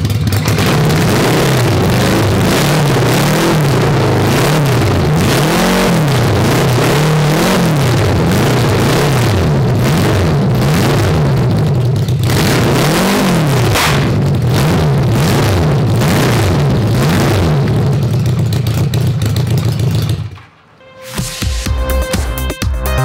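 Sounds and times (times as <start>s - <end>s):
motorcycle engine revving: 0.0s - 22.5s
electronic music: 20.8s - 23.0s.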